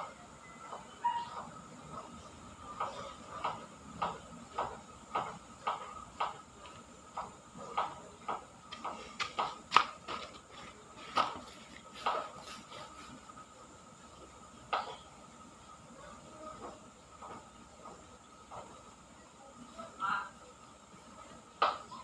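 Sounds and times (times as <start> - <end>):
faint steady high tone: 0.0 - 1.5.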